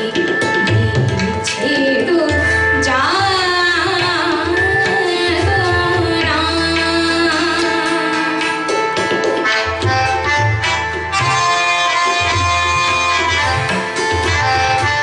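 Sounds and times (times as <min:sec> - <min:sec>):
woman singing: 0:00.0 - 0:08.9
harmonium: 0:00.0 - 0:15.0
tabla: 0:00.0 - 0:15.0.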